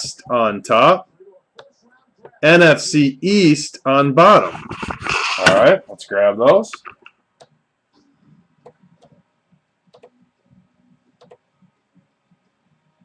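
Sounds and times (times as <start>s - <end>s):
computer mouse clicks: 9.9s - 10.2s, 11.2s - 11.4s.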